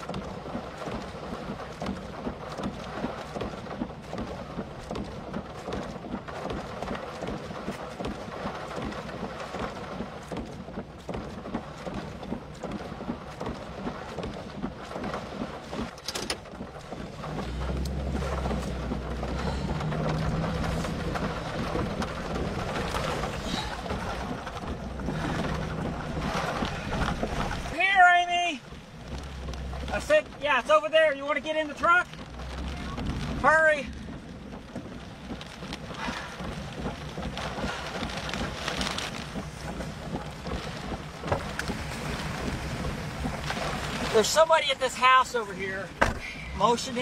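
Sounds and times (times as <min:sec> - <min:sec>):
steady low rumble: 0:00.0 - 0:47.0
heavy rain hiss: 0:17.2 - 0:47.0.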